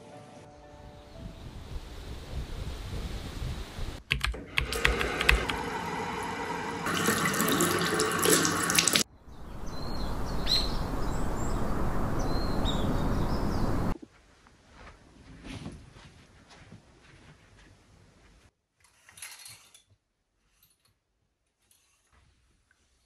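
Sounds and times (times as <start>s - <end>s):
sharp clicks: 4.0s - 5.6s
running water: 4.4s - 14.0s.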